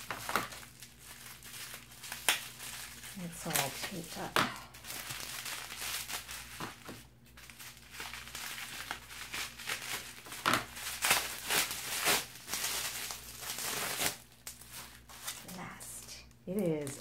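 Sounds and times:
bubble wrap crinkling: 0:00.0 - 0:17.0.

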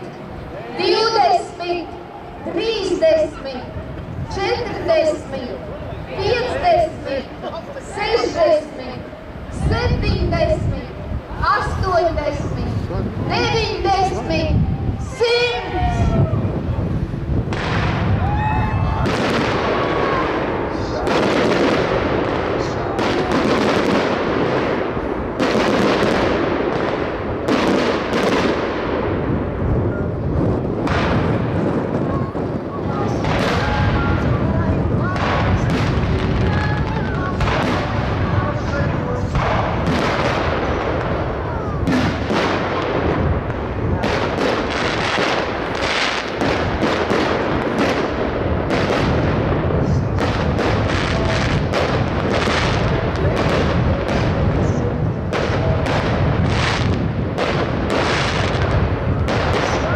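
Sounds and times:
firework crackle: 0:17.0 - 0:59.9
loud firework bangs: 0:17.0 - 0:59.9.

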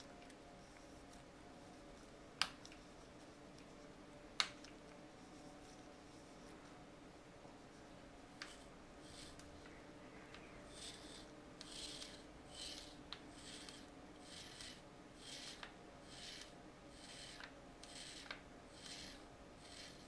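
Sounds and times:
soft rasping of watch winding: 0:08.4 - 0:09.7, 0:10.3 - 0:20.0.

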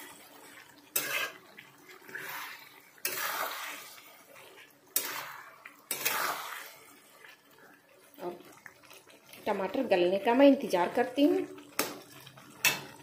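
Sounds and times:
metal spatula scraping pan: 0:00.0 - 0:07.4
tomatoes sizzling: 0:00.0 - 0:13.0.

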